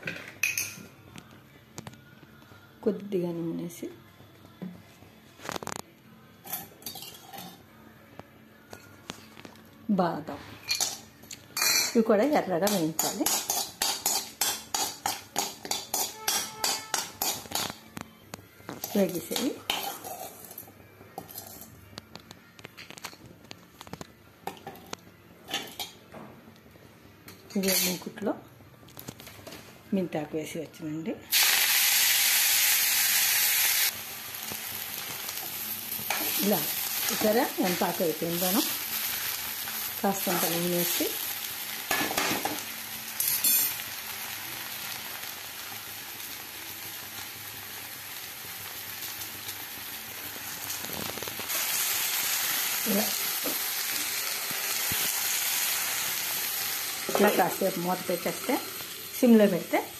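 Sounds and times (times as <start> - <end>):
steel spoon clinking and scraping: 13.2 - 17.7, 19.7 - 21.7, 43.2 - 43.8
leaves sizzling in oil: 31.3 - 59.9.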